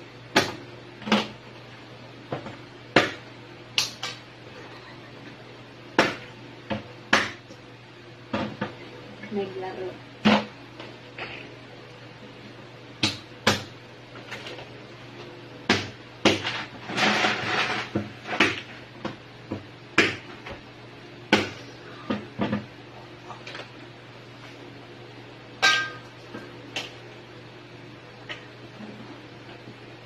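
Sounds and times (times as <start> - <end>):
steady low hum: 0.0 - 30.0
knife chopping on plastic board: 18.4 - 20.3.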